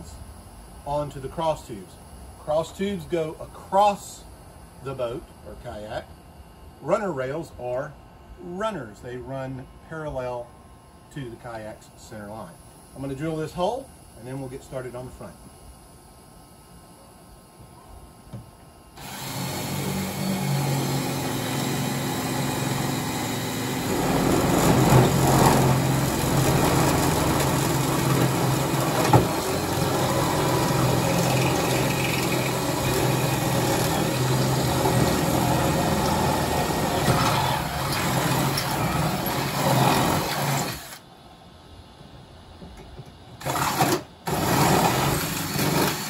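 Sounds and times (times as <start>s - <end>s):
electric drill running: 19.0s - 41.0s, 43.4s - 46.0s.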